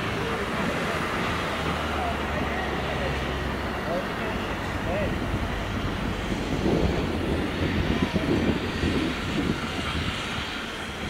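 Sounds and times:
steam hissing from cylinders: 0.0 - 11.0
steam locomotive rumble: 0.0 - 11.0.

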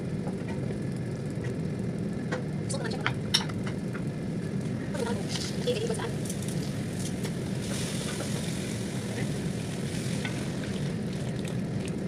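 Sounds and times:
steady low rumble: 0.0 - 12.0
stew sizzling in a pot: 5.0 - 11.0.

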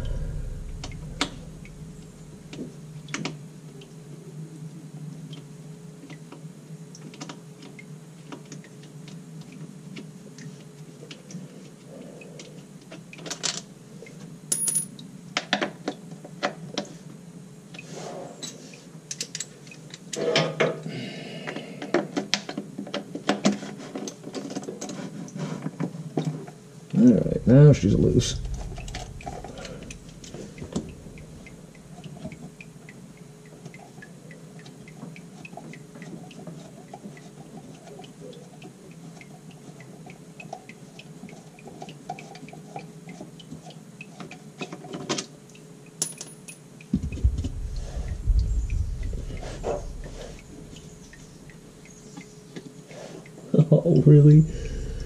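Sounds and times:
steady low hum: 0.0 - 5.8, 26.9 - 34.9, 46.9 - 52.5, 53.9 - 55.0.

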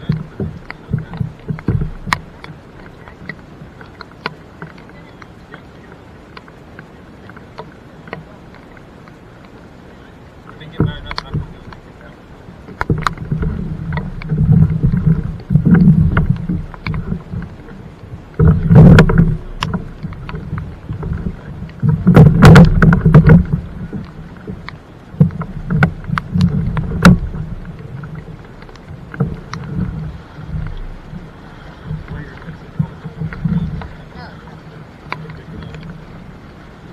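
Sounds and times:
heavy thumping: 0.0 - 2.5, 12.7 - 34.3
kayak hull knocking and scraping: 0.0 - 36.9.

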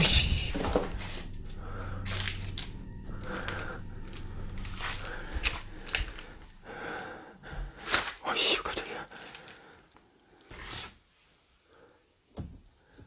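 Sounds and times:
low hum: 0.0 - 7.9.

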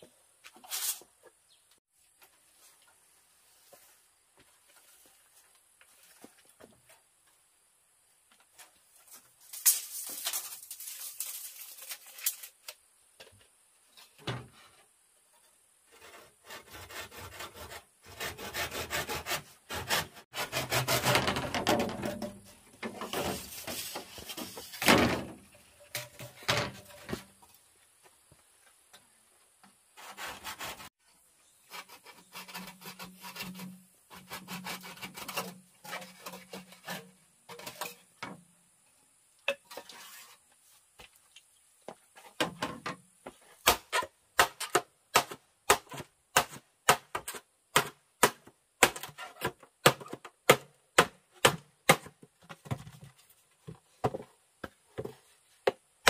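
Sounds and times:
rasping sawing strokes on bamboo: 15.9 - 21.6, 30.0 - 31.0, 31.6 - 37.7
sharp knocks on bamboo: 43.6 - 49.1, 49.8 - 52.8.

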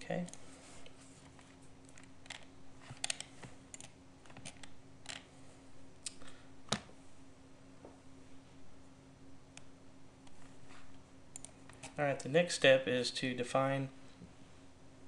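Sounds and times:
steady low hum: 0.0 - 15.0
keyboard keystrokes and clicks: 1.9 - 5.2, 11.3 - 11.6.

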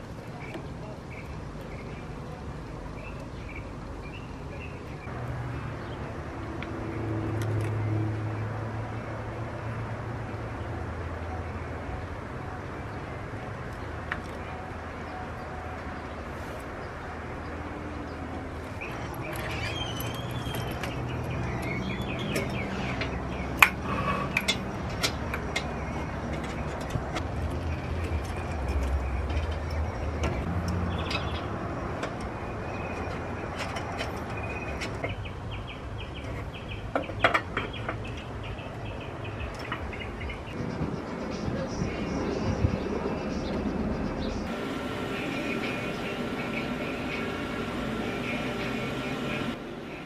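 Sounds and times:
birds chirping: 0.0 - 50.0
hand tools clinking on metal: 32.9 - 35.2
steady low hum: 40.5 - 50.0.

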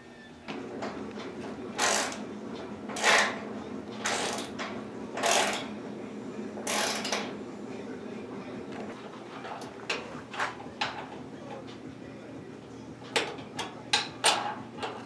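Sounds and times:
steady low hum: 0.0 - 15.0
ratchet wrench ratcheting: 1.8 - 2.2, 3.0 - 3.4, 5.2 - 5.7, 6.7 - 7.2.

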